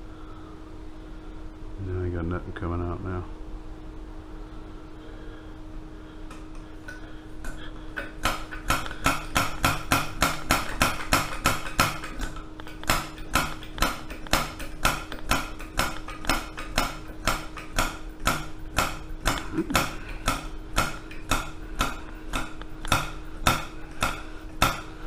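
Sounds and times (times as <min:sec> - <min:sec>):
steady low hum: 0:00.0 - 0:25.0
rapid metallic clicking: 0:08.0 - 0:25.0.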